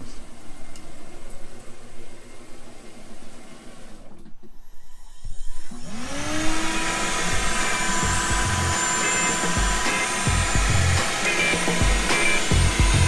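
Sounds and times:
router motor whine and whir: 0:04.5 - 0:13.0.

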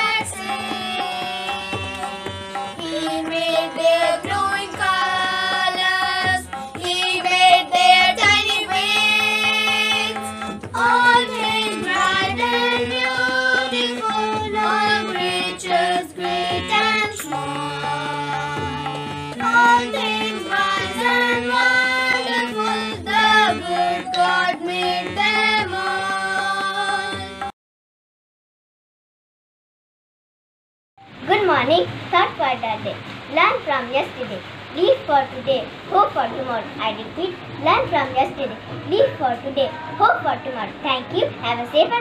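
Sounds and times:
drum beats: 0:00.0 - 0:27.5, 0:35.4 - 0:42.0
harmonium playing hymn melody: 0:00.0 - 0:27.5, 0:38.0 - 0:42.0.

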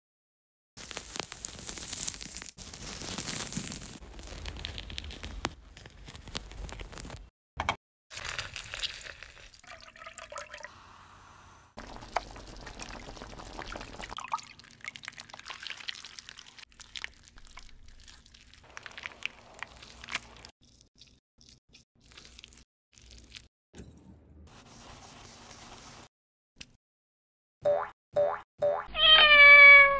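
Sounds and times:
fruit peel tearing: 0:00.8 - 0:07.2
liquid pouring into a pan: 0:08.2 - 0:10.7, 0:11.8 - 0:20.5
stirring in a pan: 0:11.8 - 0:14.2.

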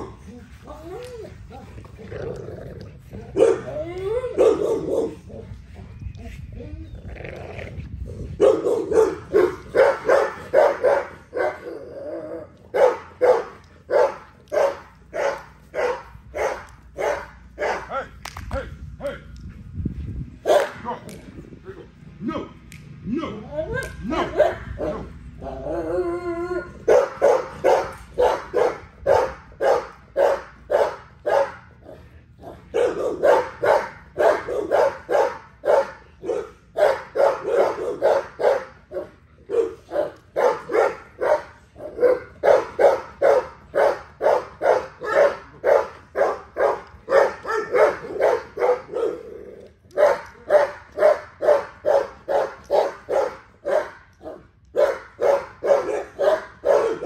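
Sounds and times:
dog barking: 0:03.4 - 0:03.7, 0:04.4 - 0:05.2, 0:08.4 - 0:11.6, 0:12.7 - 0:17.9, 0:20.5 - 0:20.8, 0:26.9 - 0:31.6, 0:32.7 - 0:49.3, 0:50.0 - 0:57.0.

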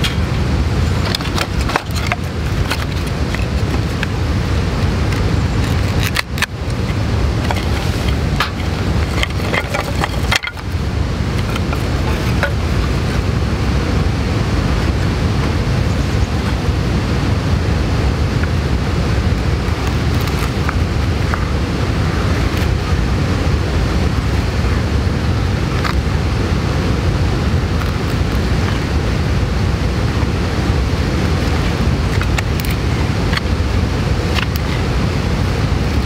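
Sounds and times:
knife splitting wooden sticks: 0:00.0 - 0:10.8, 0:11.4 - 0:13.2, 0:34.2 - 0:34.9
low outdoor rumble: 0:00.0 - 0:36.0.

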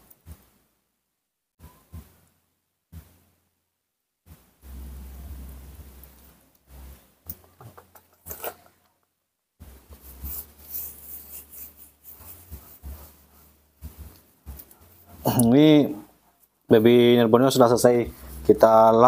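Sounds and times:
low hum: 0:04.6 - 0:07.2
cloth rubbing damp fur: 0:09.6 - 0:15.3.

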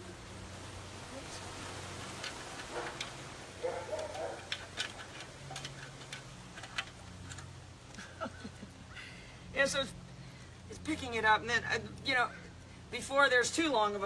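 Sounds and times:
light clicks and taps: 0:03.8 - 0:08.0.

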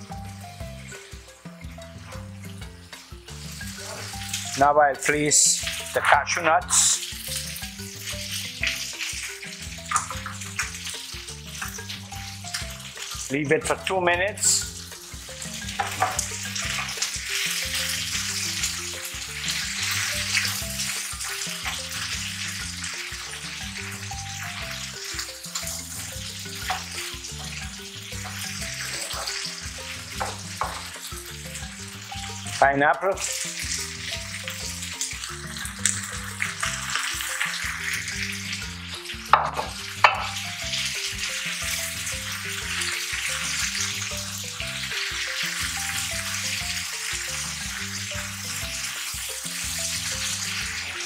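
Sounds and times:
background music: 0:00.0 - 0:51.0
food sizzling in frying pan: 0:00.0 - 0:51.0.

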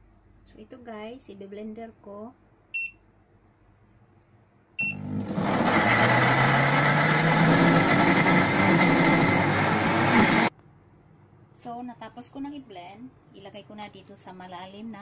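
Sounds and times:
short beep: 0:02.8 - 0:03.0, 0:04.8 - 0:05.1
blender motor running: 0:05.0 - 0:10.5.

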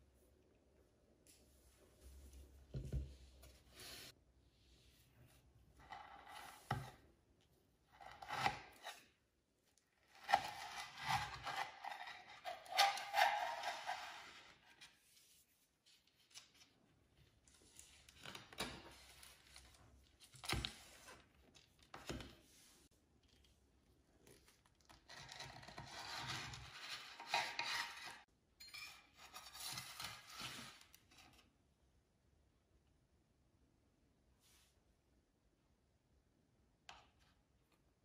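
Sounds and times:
scraping and rubbing handling noise: 0:01.3 - 0:04.2, 0:10.0 - 0:23.5, 0:24.2 - 0:28.3, 0:29.0 - 0:31.5.

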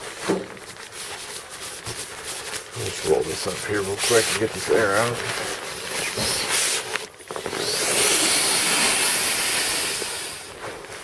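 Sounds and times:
fabric rubbing: 0:00.0 - 0:11.0
air hissing out of valve: 0:07.6 - 0:10.5.

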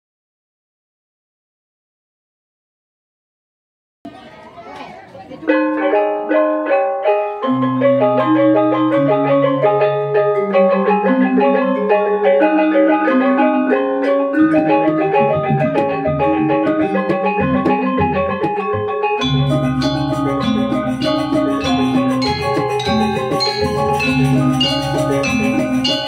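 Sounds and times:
metallophones ringing notes: 0:05.4 - 0:26.0.

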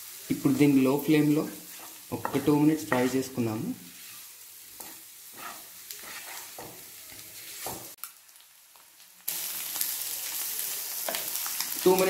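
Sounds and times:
food sizzling in a frying pan: 0:00.0 - 0:12.0
spatula scraping a pan: 0:01.4 - 0:03.2, 0:03.9 - 0:07.9.

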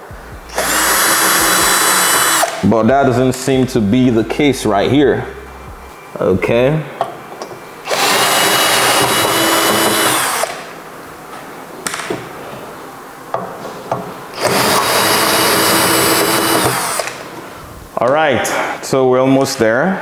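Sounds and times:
cordless drill running: 0:00.5 - 0:02.6, 0:07.9 - 0:10.6, 0:14.4 - 0:17.2.

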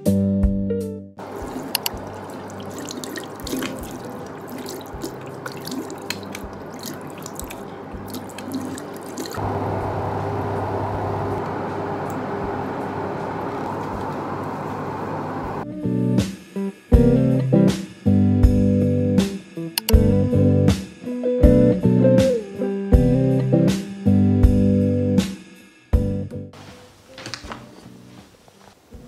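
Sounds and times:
tap running into sink: 0:01.2 - 0:09.4
water splashing on face: 0:01.2 - 0:09.4.

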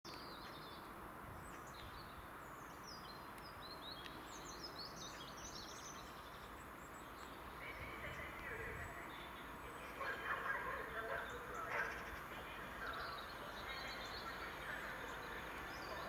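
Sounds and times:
faint outdoor background noise: 0:00.1 - 0:16.0
small birds chirping: 0:00.1 - 0:16.0.

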